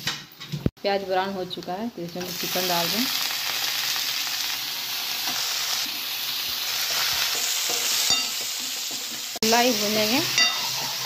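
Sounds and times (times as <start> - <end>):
chicken sizzling in hot oil: 2.2 - 11.0
steel ladle knocking a pan: 7.3 - 9.2, 10.3 - 10.8.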